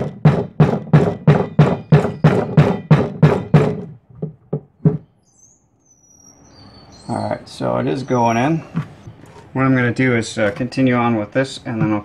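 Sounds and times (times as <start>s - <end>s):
rubber mallet hammering metal shaft: 0.0s - 5.1s.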